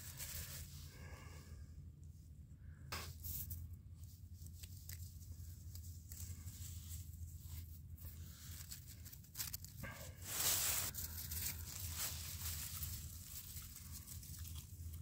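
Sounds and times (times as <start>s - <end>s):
dry grass rustling and crackling: 4.4s - 15.0s.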